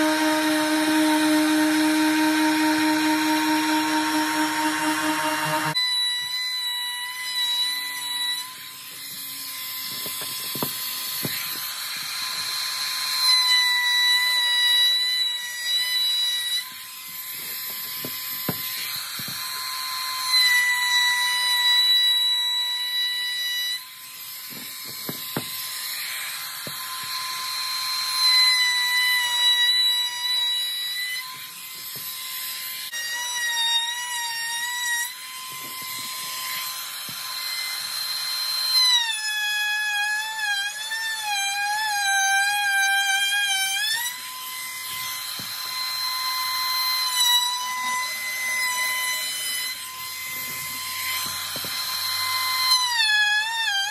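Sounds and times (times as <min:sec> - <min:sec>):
orbital sander sanding wood: 0:00.0 - 0:05.8, 0:08.2 - 0:13.3, 0:17.1 - 0:20.3, 0:42.8 - 0:53.9.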